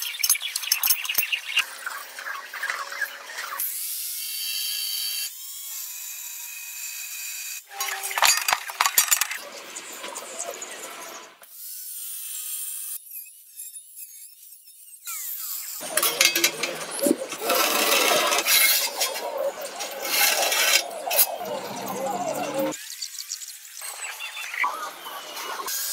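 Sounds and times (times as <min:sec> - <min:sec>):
angle grinder cutting steel: 0:11.1 - 0:24.0.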